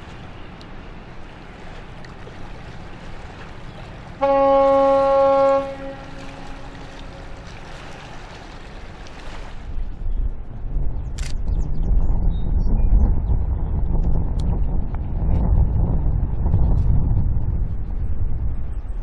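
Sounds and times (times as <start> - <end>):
water noise: 0.0 - 12.0
wind: 0.0 - 19.0
ship's horn blast: 3.8 - 8.2.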